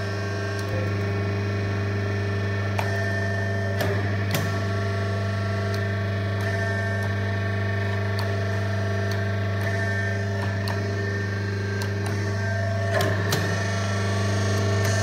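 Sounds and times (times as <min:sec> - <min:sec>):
hydraulic pump motor humming: 0:00.0 - 0:15.0.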